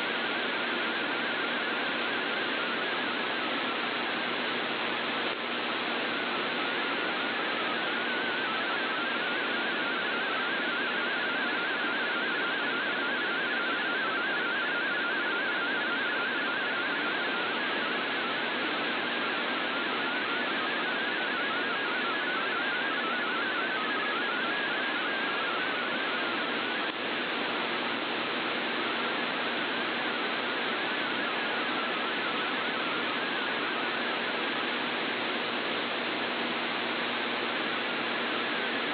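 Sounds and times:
radio static hiss: 0:00.0 - 0:38.9
warbling digital radio tones: 0:05.9 - 0:35.2.

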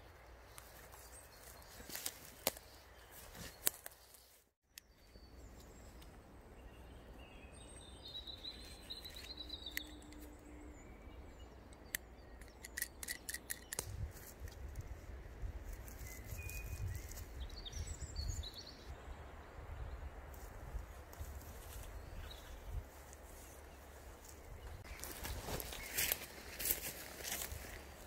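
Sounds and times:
bird chirping: 0:00.1 - 0:14.0, 0:15.9 - 0:20.1
carabiner gate clicking: 0:11.8 - 0:13.9.

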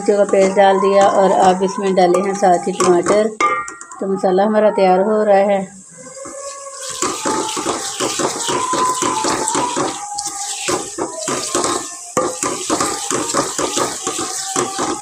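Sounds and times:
steady sizzle of frying: 0:05.9 - 0:15.0
wooden spoon scraping metal pot: 0:06.0 - 0:15.0.

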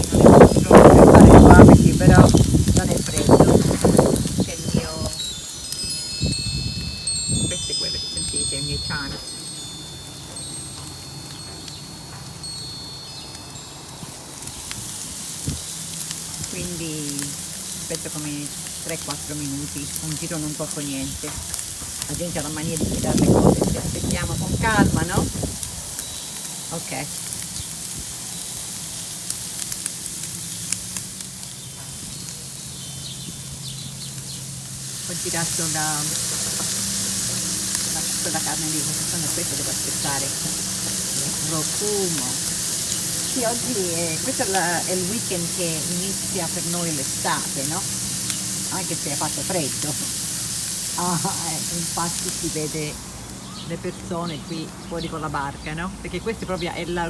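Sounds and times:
sharp crackles: 0:00.0 - 0:55.0
meat sizzling on a grill: 0:00.0 - 0:57.0
metal wind chime ringing: 0:03.0 - 0:14.7.

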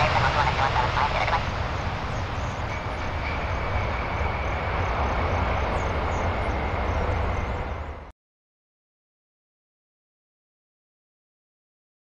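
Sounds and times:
jet engines rumbling and whining: 0:00.0 - 0:08.1.

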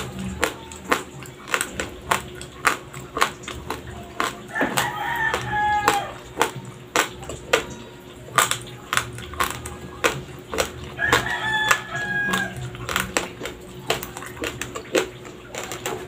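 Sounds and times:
raw rice being chewed: 0:00.0 - 0:16.0
rooster crowing: 0:04.5 - 0:06.5, 0:10.8 - 0:12.9.

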